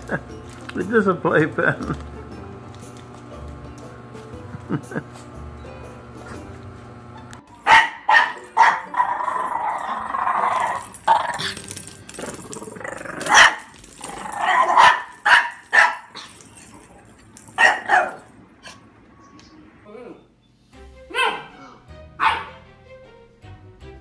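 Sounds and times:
puppy barking: 7.6 - 11.4, 13.3 - 13.7, 14.4 - 16.4, 17.6 - 18.8, 21.1 - 22.7
puppy growling: 8.7 - 14.9.

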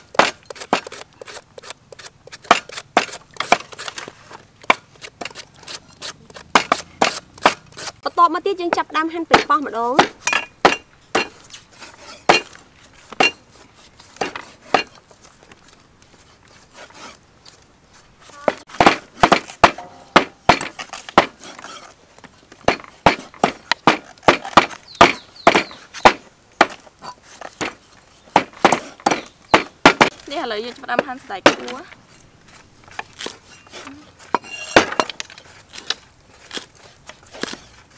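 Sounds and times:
knife chopping on wooden block: 0.1 - 4.0, 4.6 - 8.0, 18.5 - 21.6, 22.6 - 26.8, 27.6 - 30.2.

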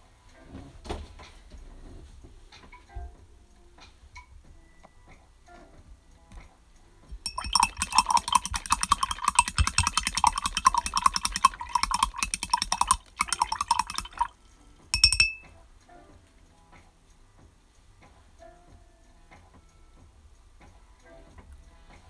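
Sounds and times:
hard object clinking and rattling: 7.3 - 14.3, 15.0 - 15.5.

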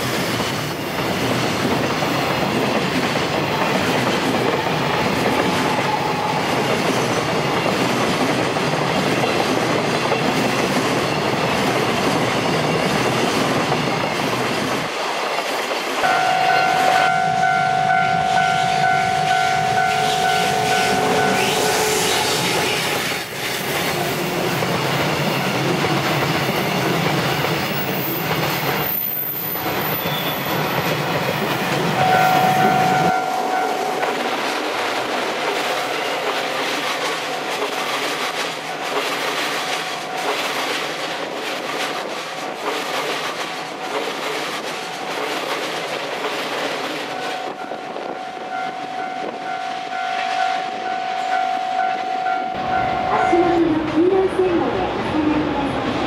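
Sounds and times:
freight train rolling past: 0.0 - 56.0
steady high tone: 16.0 - 23.4, 31.5 - 36.6, 47.1 - 55.8.

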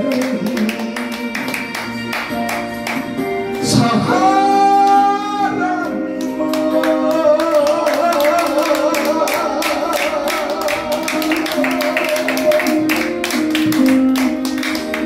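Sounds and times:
man singing into microphone: 0.0 - 2.1, 3.5 - 13.2
backing track with beat: 0.0 - 15.0.

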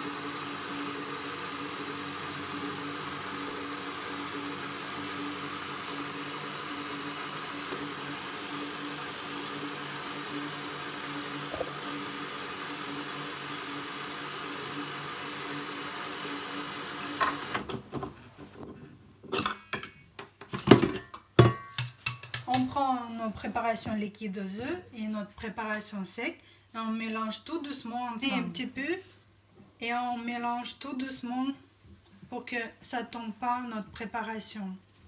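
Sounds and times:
stand mixer motor running: 0.0 - 17.7
whisk clicking and knocking: 21.8 - 22.7.

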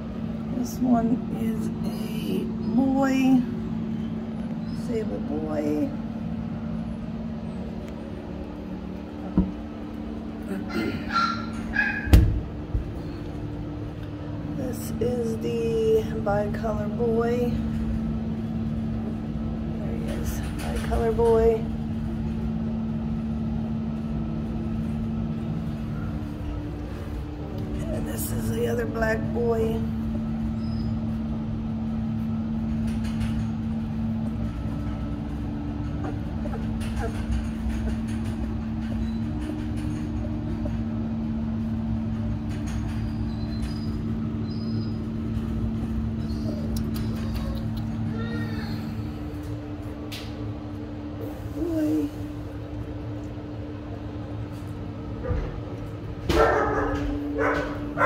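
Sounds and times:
low mechanical hum: 0.0 - 58.0
puppies squealing and whimpering: 10.7 - 12.2, 36.0 - 38.0, 43.1 - 45.1, 46.1 - 48.9.

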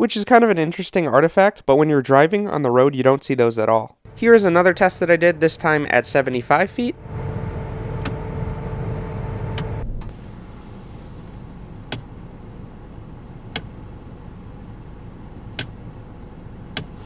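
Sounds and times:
car engine idling: 4.1 - 17.0
steady hum: 4.1 - 17.0
headlight switch clicks: 11.9 - 12.1, 13.5 - 13.8, 15.5 - 15.8, 16.7 - 17.0.

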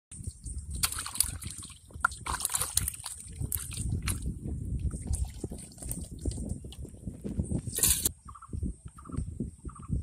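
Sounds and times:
muddy water splashing: 0.2 - 7.1.

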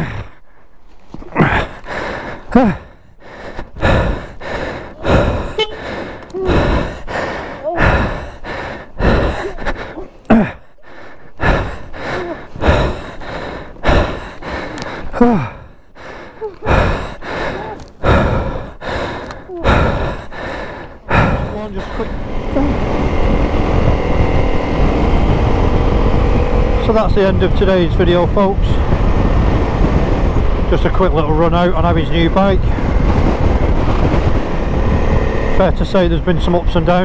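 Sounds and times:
person panting heavily: 0.0 - 24.4, 31.0 - 34.9.

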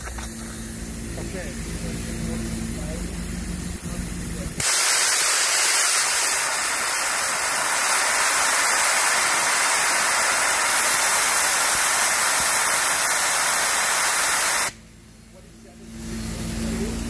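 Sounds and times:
safety valve blowing off steam: 4.6 - 14.8.

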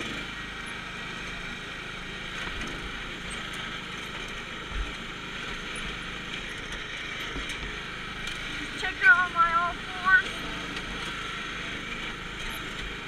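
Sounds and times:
riding lawn mower engine: 0.0 - 13.0.

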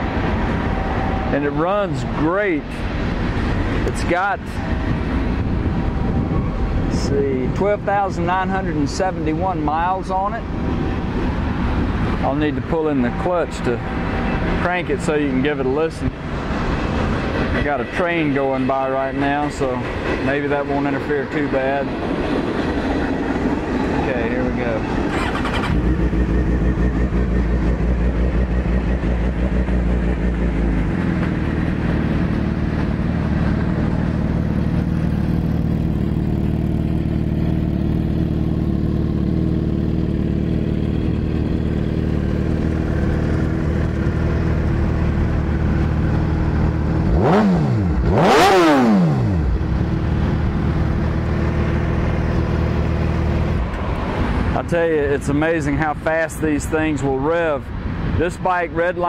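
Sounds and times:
motorcycle engine revving: 22.2 - 54.5
motorcycle engine starting and idling: 24.2 - 54.4.

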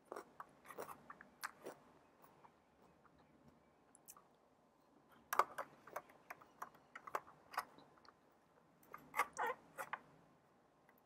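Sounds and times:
crisp chewing crunches: 0.0 - 1.9.

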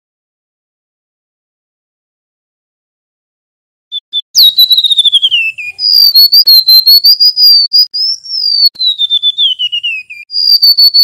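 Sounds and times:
bird singing whistled trill: 3.9 - 11.0.

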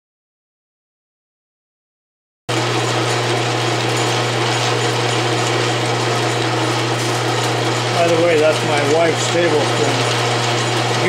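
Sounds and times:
lathe gears whirring: 2.5 - 11.0.

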